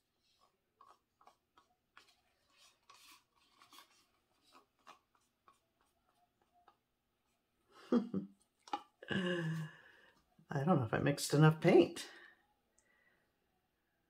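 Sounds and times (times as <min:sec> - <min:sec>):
stick scraping paint in cup: 0:00.0 - 0:06.8.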